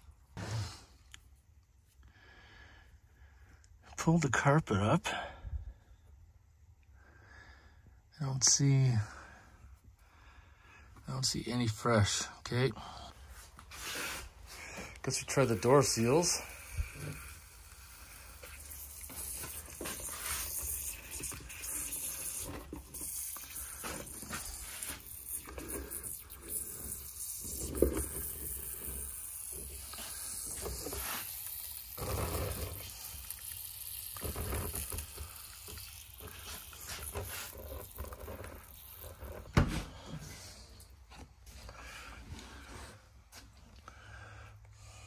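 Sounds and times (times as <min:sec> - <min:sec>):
pump sprayer spraying water: 0:13.8 - 0:39.7.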